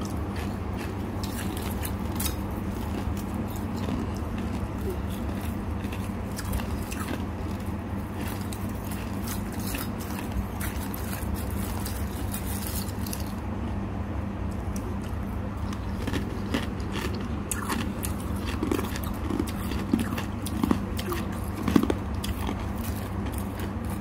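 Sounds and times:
steady low hum: 0.0 - 24.0
frost crunching in steel bowl: 1.2 - 13.4.

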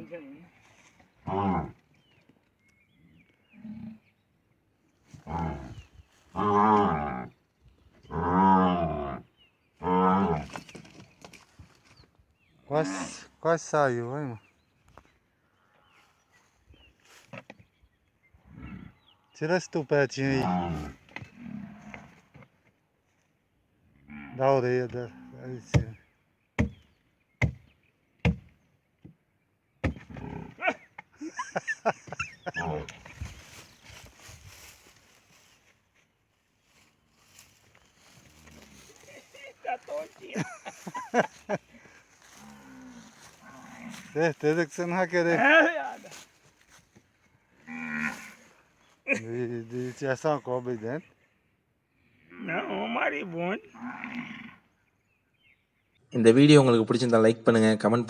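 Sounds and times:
axe chopping wood: 26.6 - 26.8, 27.4 - 28.5, 29.8 - 30.1.

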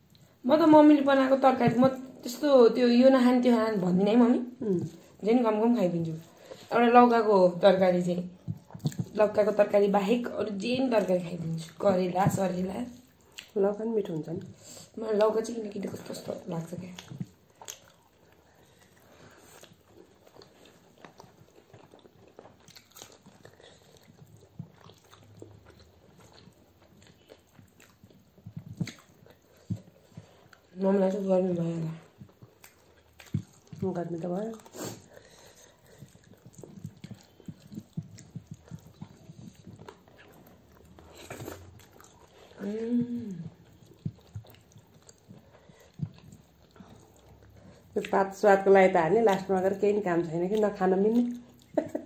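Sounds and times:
people chewing: 0.0 - 0.4, 3.4 - 6.9, 7.6 - 52.0.

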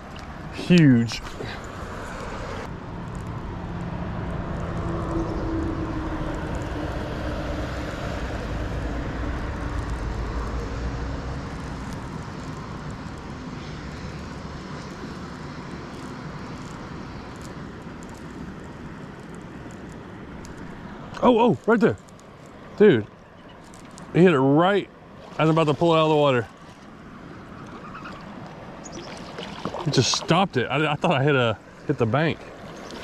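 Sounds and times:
passing motor engine drone: 3.4 - 12.2.

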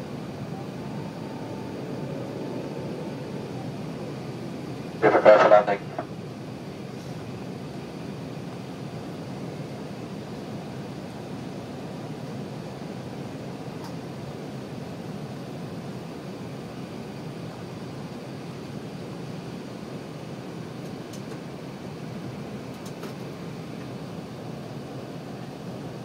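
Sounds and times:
air rushing over airframe: 0.0 - 5.0
jet engines droning: 0.0 - 26.0.

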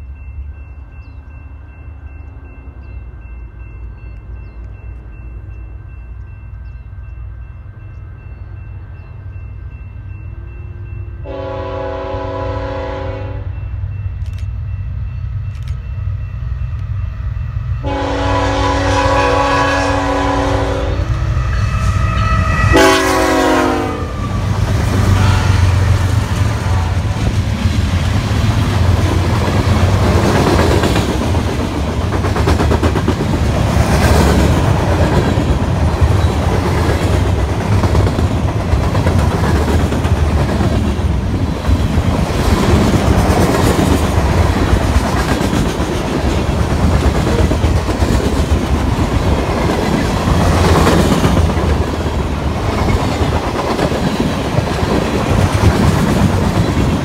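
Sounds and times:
train rumble and clickety-clack: 0.0 - 57.0
locomotive horn blasts: 11.2 - 13.6, 17.8 - 27.2.

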